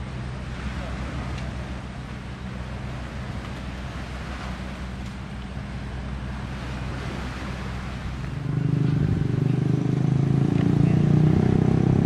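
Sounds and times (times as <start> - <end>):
hiss of wind or surf: 0.0 - 10.0
engine running steadily: 0.0 - 12.0.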